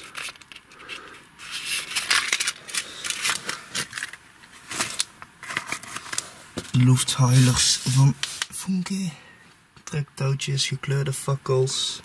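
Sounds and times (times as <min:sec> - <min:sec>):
packaging rustling and clicking: 0:00.0 - 0:07.5.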